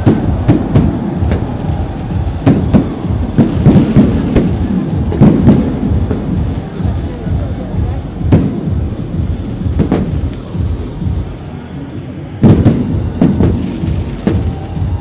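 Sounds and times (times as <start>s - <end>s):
firework shells bursting: 0.0s - 6.8s, 12.4s - 14.9s
continuous low rumble: 0.0s - 15.0s.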